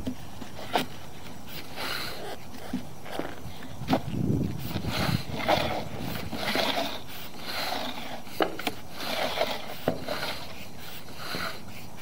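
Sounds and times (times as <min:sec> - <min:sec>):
cable rubbing and scraping in pipe: 0:00.0 - 0:12.0.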